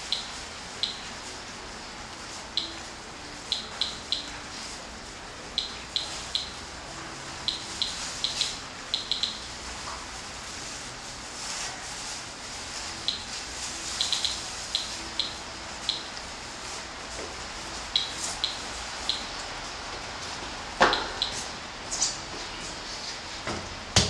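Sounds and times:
geiger counter beeps: 0:05.6 - 0:06.6, 0:07.4 - 0:09.4, 0:14.0 - 0:16.1, 0:17.9 - 0:19.3.

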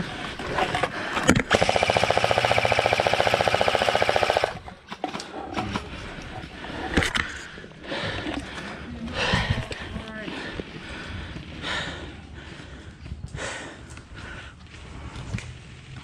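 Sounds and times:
airsoft gun full-auto burst: 0:01.5 - 0:05.0.

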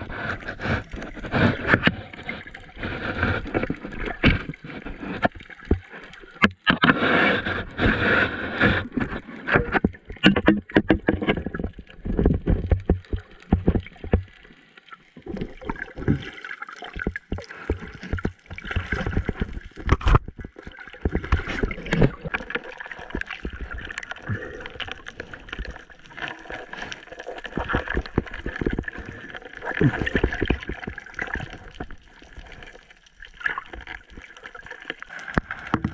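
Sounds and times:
muffled underwater gurgling: 0:16.9 - 0:32.8.

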